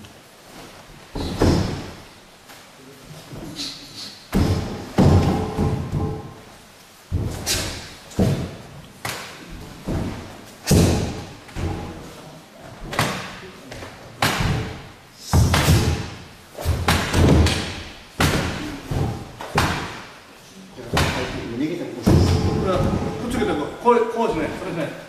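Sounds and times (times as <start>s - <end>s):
punches thudding on striking post: 4.3s - 6.4s, 9.9s - 11.9s, 14.2s - 20.0s, 21.0s - 23.2s.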